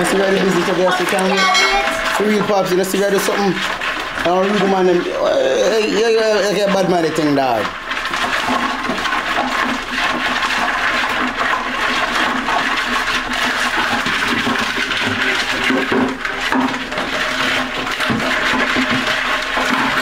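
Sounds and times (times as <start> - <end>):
water rushing: 0.0 - 13.8.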